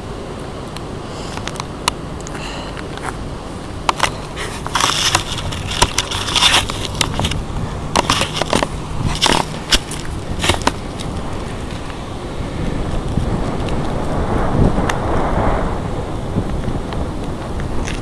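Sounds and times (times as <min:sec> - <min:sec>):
steady low rumble: 0:00.0 - 0:18.0
camera handling noise: 0:03.9 - 0:11.9.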